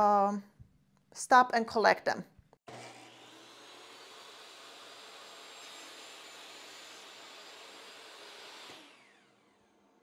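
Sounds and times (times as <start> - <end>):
shop vacuum running: 2.7 - 10.0
table saw whirring: 2.7 - 10.0.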